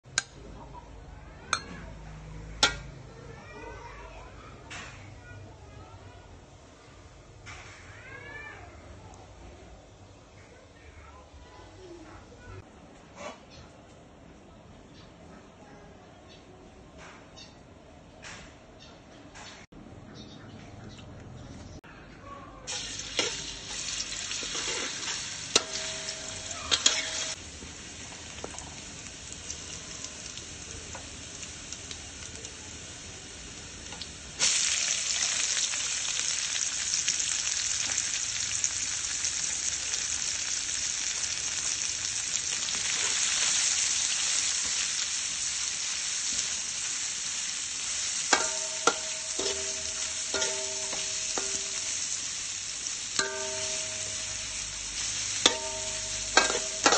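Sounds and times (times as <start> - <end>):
metal spatula clanking on wok: 2.6 - 3.0, 22.7 - 27.4, 48.3 - 52.3, 53.2 - 56.9
oil sizzling in a wok: 22.7 - 56.9.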